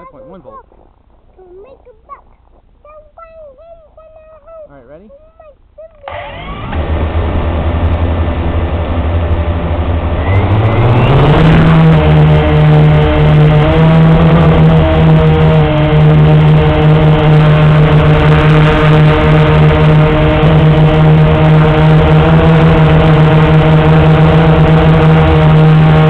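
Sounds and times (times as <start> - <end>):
quadcopter motors whining: 6.0 - 26.0.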